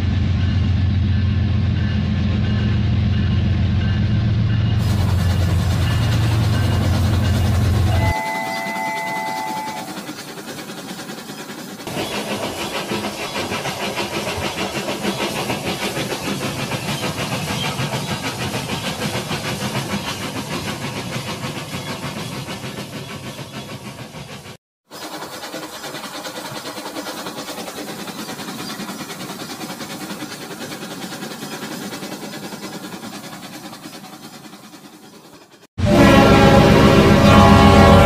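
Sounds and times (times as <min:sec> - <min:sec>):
hiss: 0:04.8 - 0:35.7
toy train motor and wheels rattling: 0:04.9 - 0:22.8, 0:24.9 - 0:35.6
electronic whistle-like tone: 0:05.9 - 0:10.2.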